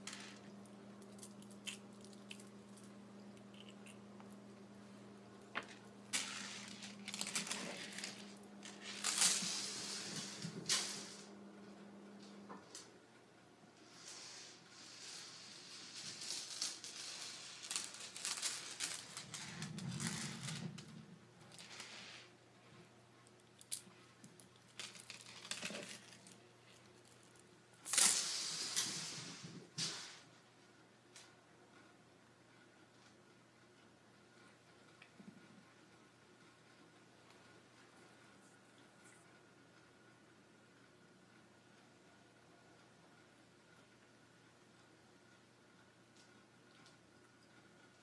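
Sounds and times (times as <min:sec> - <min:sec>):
low steady hum: 0:00.0 - 0:48.0
rustling handling noise: 0:05.4 - 0:11.4, 0:13.9 - 0:30.2
bead necklace clattering on wood floor: 0:05.5 - 0:11.2, 0:15.0 - 0:22.2, 0:23.6 - 0:29.4.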